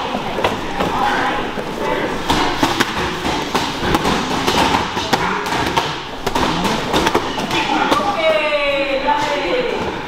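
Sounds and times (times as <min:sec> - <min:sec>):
boxing gloves hitting pads: 0:02.2 - 0:08.1.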